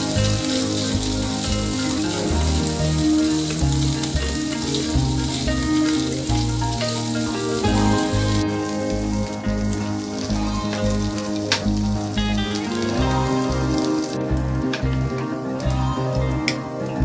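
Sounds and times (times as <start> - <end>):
meat sizzling in oil: 0.0 - 14.4
background music: 0.0 - 17.0.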